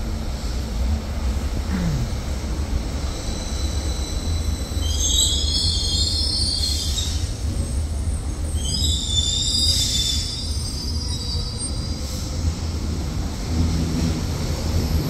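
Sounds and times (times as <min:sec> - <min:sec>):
train low rumble: 0:00.0 - 0:15.0
train wheels squealing: 0:02.7 - 0:12.8.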